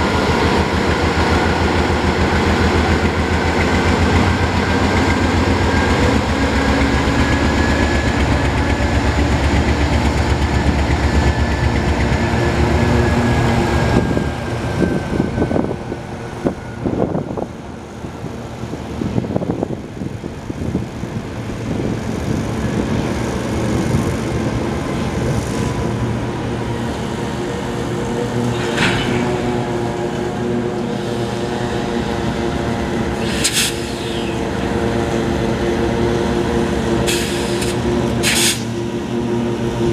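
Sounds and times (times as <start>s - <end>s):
high engine whine: 0.0s - 39.9s
diesel locomotive idling: 19.8s - 39.9s.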